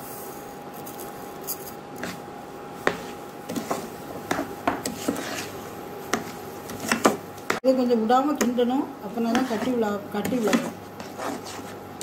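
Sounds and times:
ladle scraping a pan: 0:02.9 - 0:07.2, 0:09.3 - 0:11.8.

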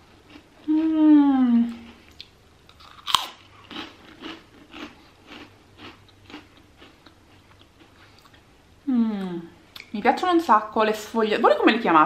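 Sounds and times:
chewing crunches: 0:00.2 - 0:00.8, 0:01.7 - 0:08.4
cracker biting crack: 0:02.1 - 0:07.7.

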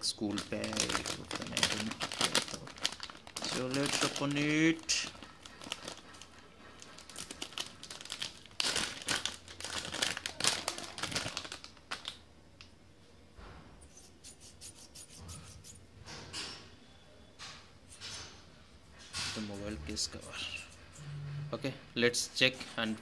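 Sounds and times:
plastic pouch crinkling and tearing: 0:00.2 - 0:06.3, 0:06.9 - 0:12.2.

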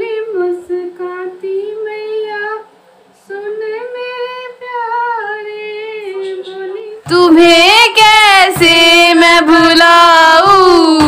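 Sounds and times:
woman singing unaccompanied: 0:00.0 - 0:11.0.

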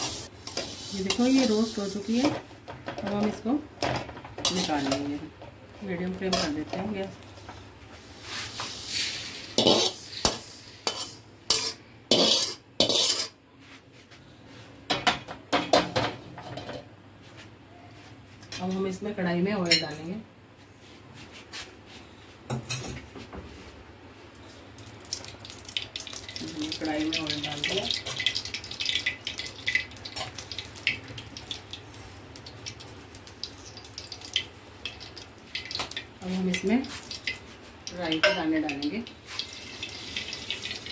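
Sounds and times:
metal skimmer scraping a pan: 0:08.9 - 0:13.3
oil crackling and popping: 0:24.8 - 0:38.1, 0:39.1 - 0:40.9.

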